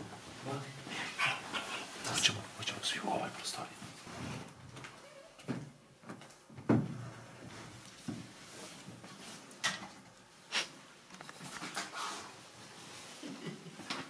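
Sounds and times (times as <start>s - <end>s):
knocks and thumps: 6.5s - 7.0s.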